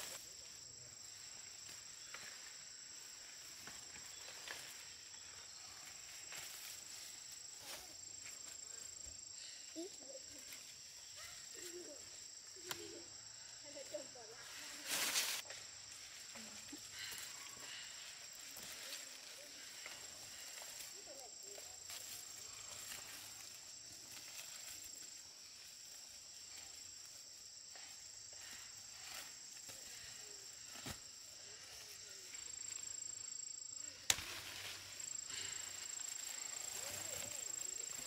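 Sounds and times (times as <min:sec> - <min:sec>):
insects chorus: 0:00.0 - 0:38.0
leaves rustling: 0:00.0 - 0:38.0.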